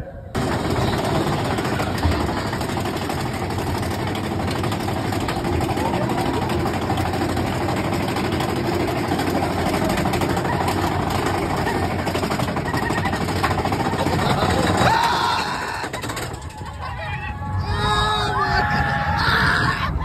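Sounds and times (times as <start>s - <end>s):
roller coaster rumbling on track: 0.0s - 20.0s
rushing wind: 16.5s - 20.0s.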